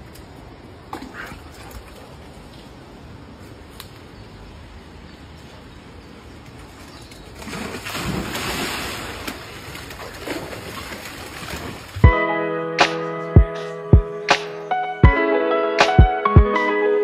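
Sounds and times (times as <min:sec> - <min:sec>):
water splashing in stream: 0:07.4 - 0:12.0
plucked-string music: 0:12.0 - 0:17.0.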